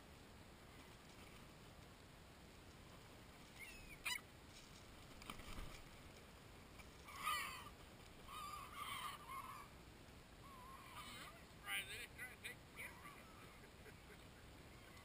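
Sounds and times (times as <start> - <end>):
gulls calling: 7.0 - 9.8, 10.4 - 15.0.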